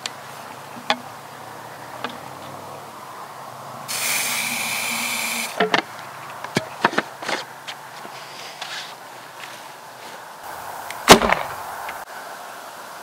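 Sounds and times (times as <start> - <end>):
aerosol spray hissing: 3.9 - 5.6.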